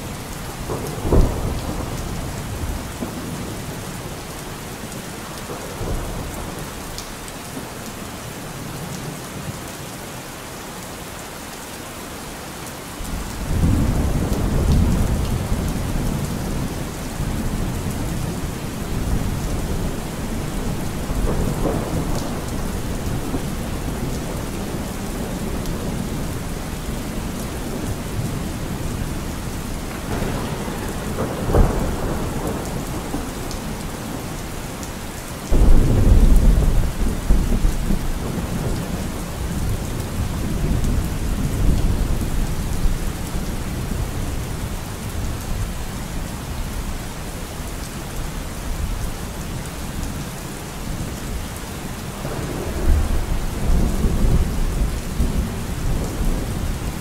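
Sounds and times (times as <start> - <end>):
steady rain: 0.0 - 57.0
thunder rumbling: 0.4 - 3.6, 13.1 - 44.1, 52.2 - 57.0.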